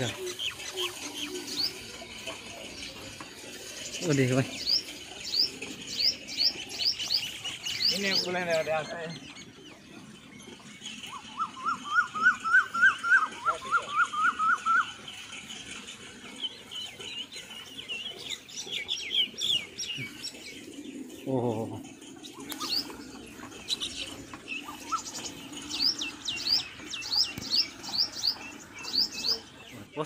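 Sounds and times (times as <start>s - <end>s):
small birds chirping: 0.0s - 30.0s
low wavering bird call: 11.1s - 15.1s.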